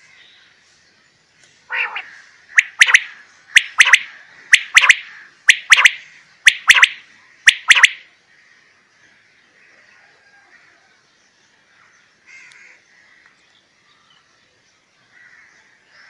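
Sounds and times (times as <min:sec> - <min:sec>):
quail calling: 0:01.7 - 0:08.0.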